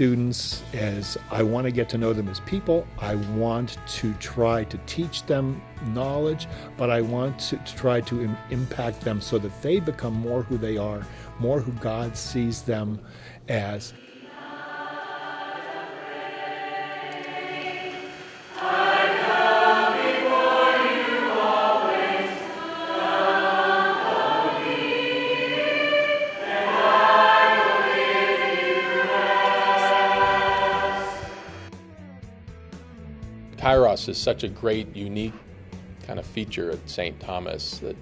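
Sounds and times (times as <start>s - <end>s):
choir singing a hymn: 13.9s - 31.8s.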